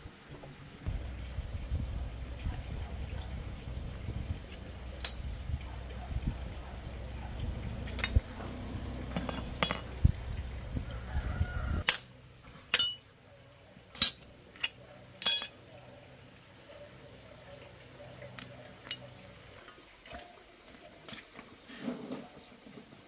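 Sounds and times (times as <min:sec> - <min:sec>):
metal parts clinking on concrete: 0:04.5 - 0:05.3, 0:07.8 - 0:08.3, 0:09.1 - 0:10.0, 0:11.8 - 0:12.1, 0:12.7 - 0:13.1, 0:13.9 - 0:15.6, 0:18.3 - 0:19.3.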